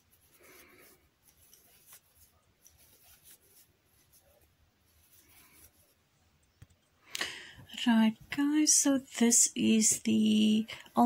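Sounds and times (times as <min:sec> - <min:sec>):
crochet hook scratching yarn: 0:00.0 - 0:06.1.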